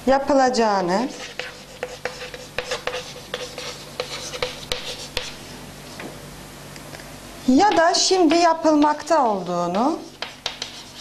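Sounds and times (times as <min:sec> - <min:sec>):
chalk writing on chalkboard: 0:01.0 - 0:06.1, 0:09.7 - 0:11.0.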